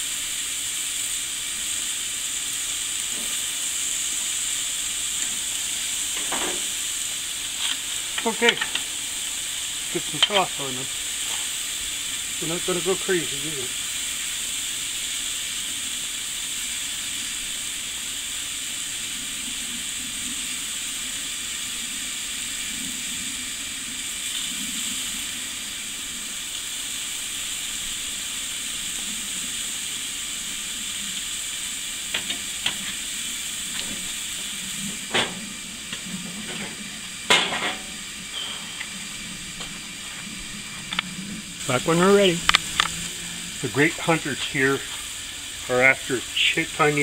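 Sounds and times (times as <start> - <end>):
patties sizzling on a grill: 0.0 - 47.0
grill lid clunk: 3.0 - 10.6, 32.1 - 33.0, 33.8 - 39.8.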